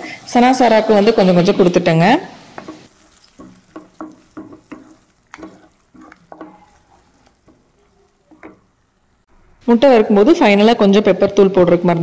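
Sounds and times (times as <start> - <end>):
wooden spatula scraping a pan: 2.4 - 9.3.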